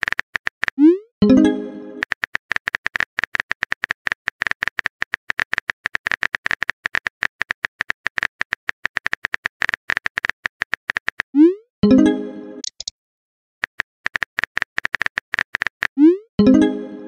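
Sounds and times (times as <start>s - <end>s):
phone keyboard clicks: 12.6s - 12.9s, 14.0s - 16.0s.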